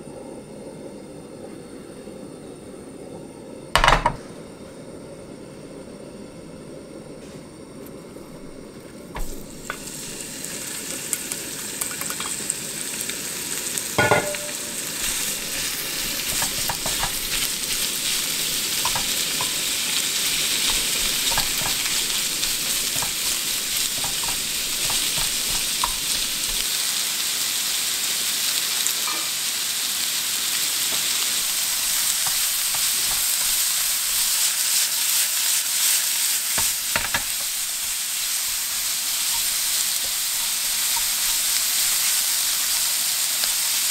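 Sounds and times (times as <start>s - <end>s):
meat sizzling in oil: 8.4s - 43.9s
chopsticks clicking against pan: 18.8s - 19.7s, 20.6s - 26.6s, 39.2s - 42.0s.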